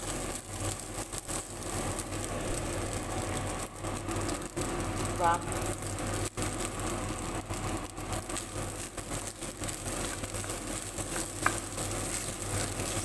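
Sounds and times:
rice sizzling in a pan: 0.0s - 13.0s.

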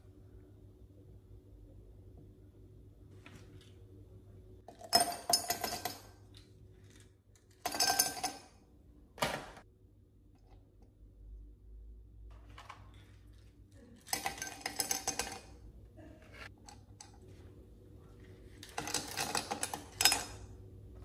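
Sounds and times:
ice cubes clinking into a glass: 7.5s - 8.5s.

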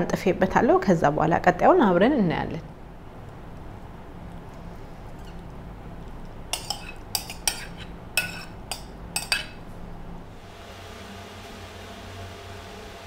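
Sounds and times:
metal spoon clinking on ceramic bowl: 6.5s - 9.6s.

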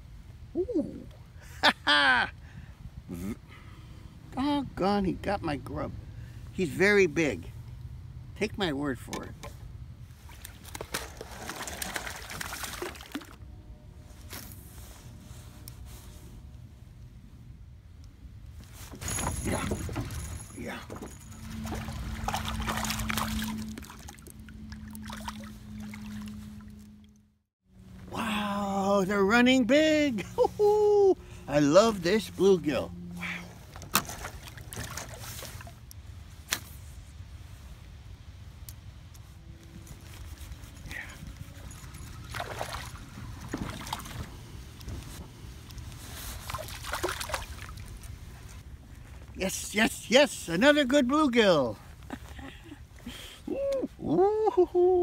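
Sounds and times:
fish splashing at water surface: 10.3s - 13.4s, 21.4s - 26.4s, 46.3s - 48.1s
steady low hum: 12.8s - 49.4s.

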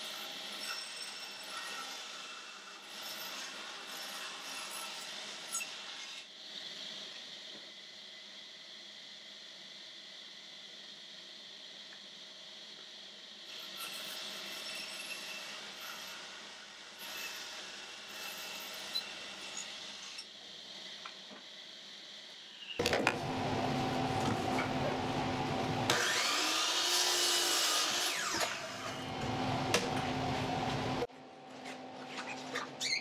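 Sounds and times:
saw blade cutting wood: 13.5s - 20.3s, 23.9s - 30.8s
miter saw running: 22.8s - 31.1s.

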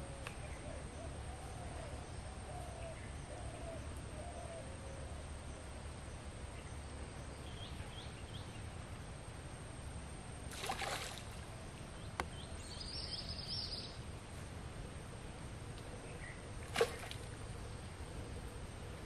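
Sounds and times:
faint bird chirps: 11.9s - 14.0s.

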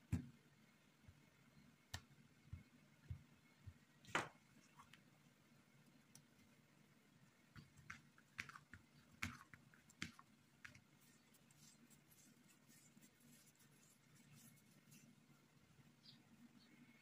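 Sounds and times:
taps and clicks of dough handling: 0.0s - 0.4s, 1.0s - 5.1s, 7.5s - 11.6s
faint low hum: 0.0s - 17.0s.

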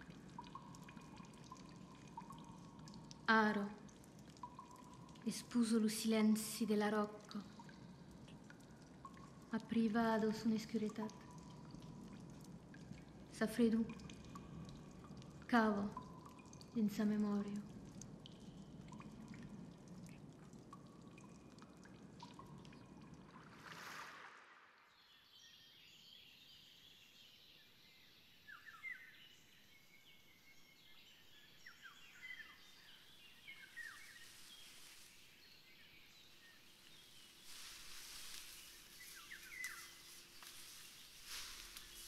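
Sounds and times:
water drips in cave: 0.0s - 26.2s, 28.5s - 42.0s
low hiss: 0.0s - 42.0s
birds chirping: 31.5s - 42.0s.

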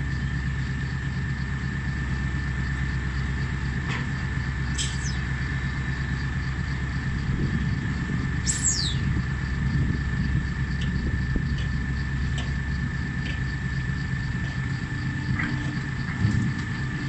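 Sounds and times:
diesel engines running: 0.0s - 17.0s
steady high whine: 4.5s - 17.0s
short falling chirp: 4.7s - 5.2s, 8.4s - 9.0s.

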